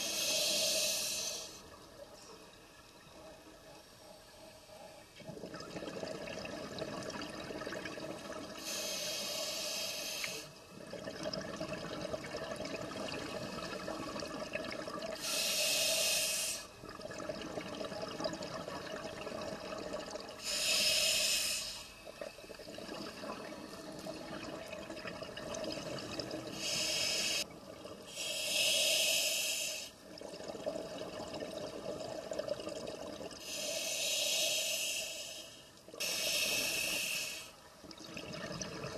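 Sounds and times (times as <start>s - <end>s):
regulator hiss: 0.0s - 1.6s, 8.6s - 10.5s, 15.2s - 16.7s, 20.4s - 21.9s, 26.6s - 27.4s, 28.2s - 29.9s, 33.5s - 37.6s.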